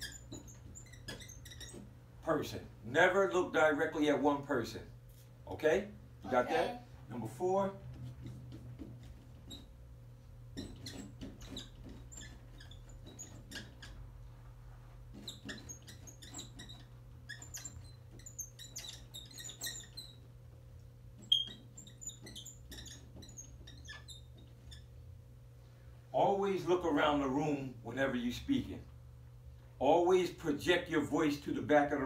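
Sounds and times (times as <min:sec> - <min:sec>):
marker squeaking on whiteboard: 0:00.0 - 0:02.2, 0:07.8 - 0:20.4, 0:21.0 - 0:25.1.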